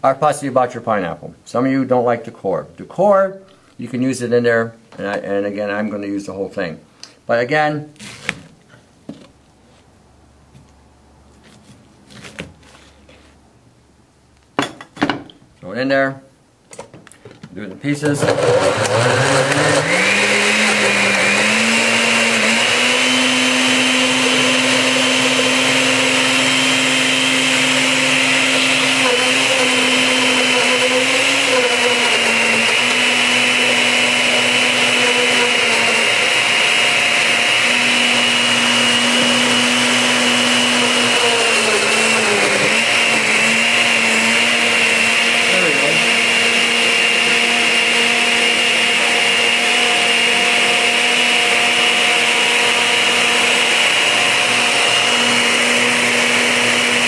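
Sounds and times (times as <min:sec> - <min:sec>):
blender running loud: 0:18.0 - 0:57.0.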